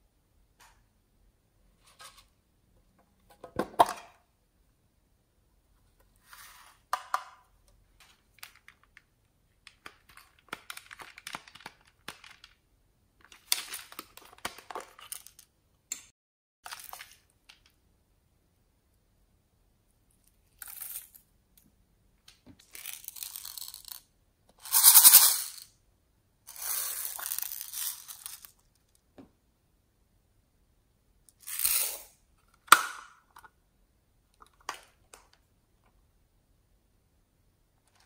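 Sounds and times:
plastic sequins rattling: 24.6 - 25.6, 26.5 - 28.6.

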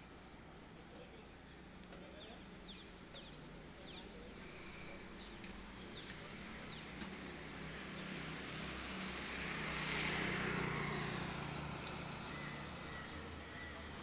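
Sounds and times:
birds whistling: 1.2 - 8.1, 12.2 - 14.0.

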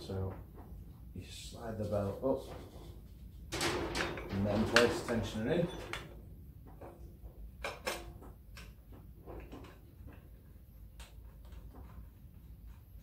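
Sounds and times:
metal parts knocking and clicking: 3.5 - 7.0.

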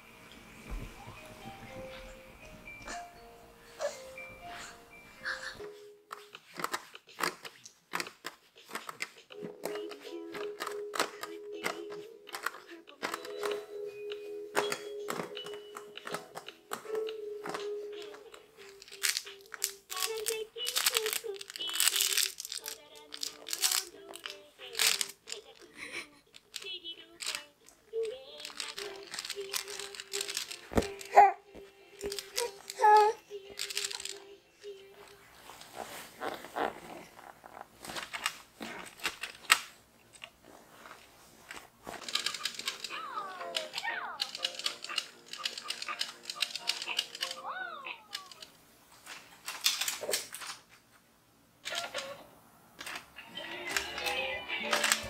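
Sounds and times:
plastic toys clicking and rattling: 6.1 - 13.6, 14.6 - 31.3, 31.9 - 35.2, 37.8 - 50.7, 51.6 - 52.2, 52.8 - 55.0.

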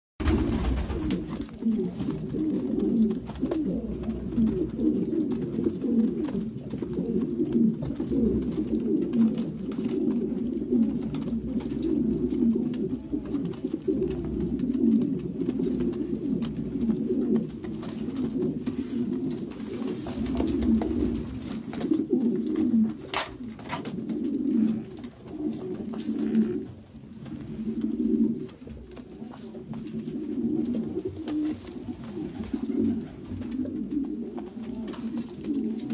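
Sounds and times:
pigeons cooing: 0.2 - 35.9.

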